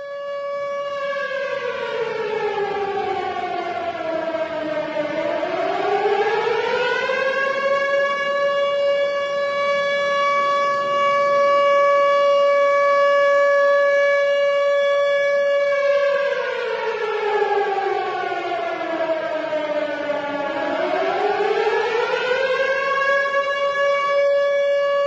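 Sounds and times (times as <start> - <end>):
warning siren wailing: 0.0 - 25.0.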